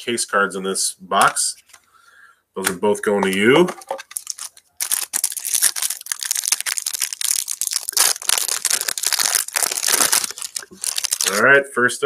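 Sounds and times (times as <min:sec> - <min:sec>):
plastic wrapper crinkling and tearing: 0:03.8 - 0:11.4.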